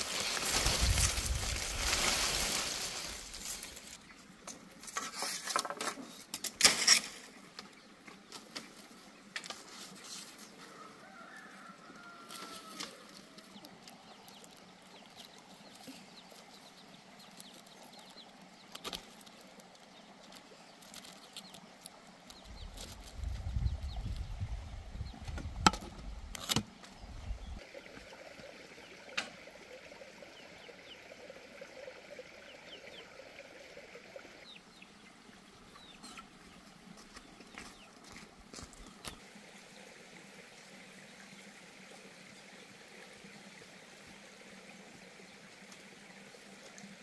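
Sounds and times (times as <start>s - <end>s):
leaf thatch rustling and crackling: 0.0s - 7.4s, 8.2s - 24.3s.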